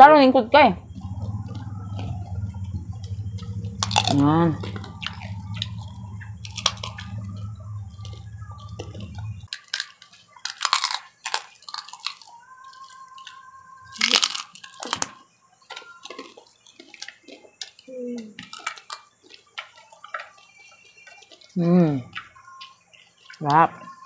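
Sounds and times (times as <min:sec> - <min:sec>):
steady low hum: 0:00.0 - 0:09.5
crunchy snack being chewed: 0:00.8 - 0:24.0.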